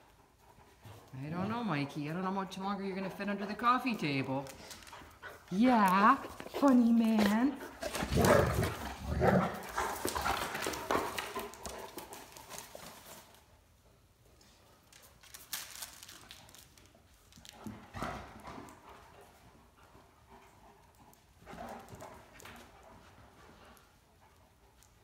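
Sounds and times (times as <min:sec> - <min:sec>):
dog claws clicking on tile: 0:04.4 - 0:13.4.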